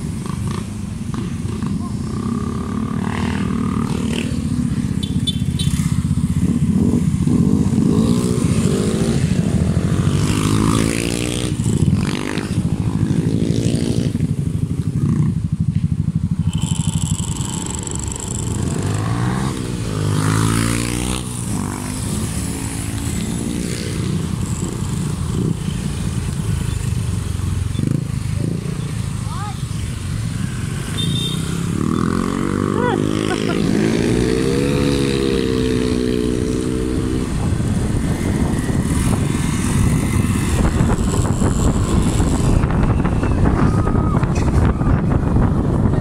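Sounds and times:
motor scooters revving past: 16.3 - 46.0.

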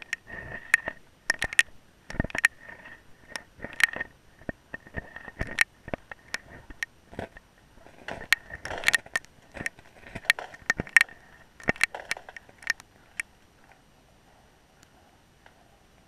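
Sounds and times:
underwater clicks and knocks: 0.0 - 2.6, 3.3 - 13.3
scratchy noise: 2.2 - 15.8.

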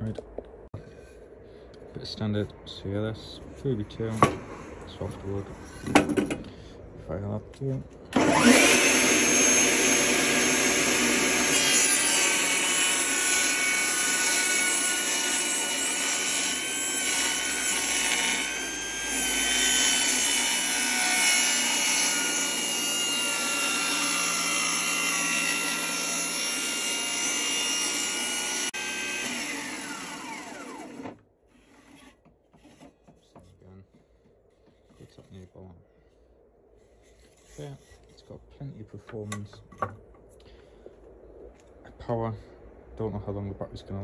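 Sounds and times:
table saw motor whine: 8.2 - 31.2
saw blade cutting wood: 8.2 - 33.0.

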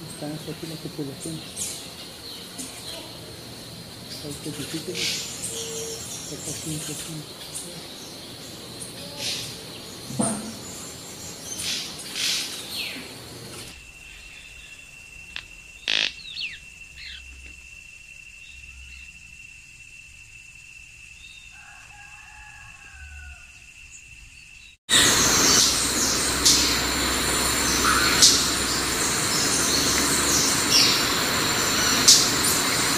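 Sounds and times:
hissy background noise: 0.0 - 32.9
short falling bird calls: 15.3 - 17.3.

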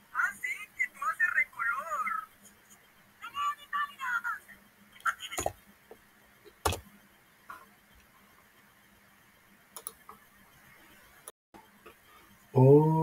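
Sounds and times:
faint steady hum: 0.0 - 13.0
computer mouse clicks: 9.8 - 10.2.

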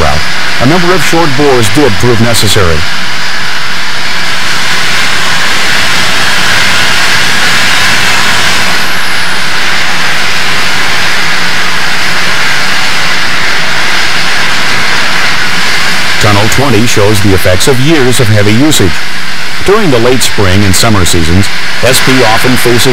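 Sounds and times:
train rushing roar: 0.0 - 22.9.

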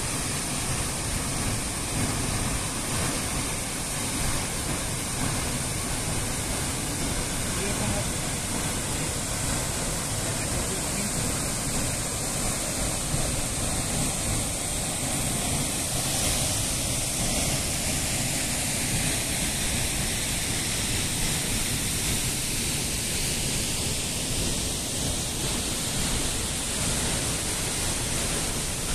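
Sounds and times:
waterfall and stream rushing: 0.0 - 28.9.

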